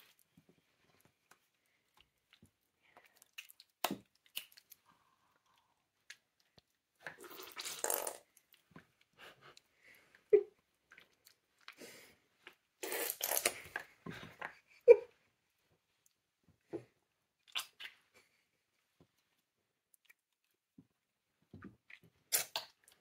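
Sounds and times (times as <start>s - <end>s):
hands squelching wet paint: 0.0s - 9.8s.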